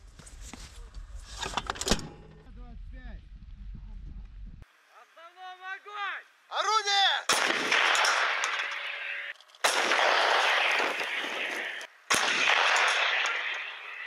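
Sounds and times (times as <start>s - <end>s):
howitzer shots with rolling echo: 7.3s - 14.0s.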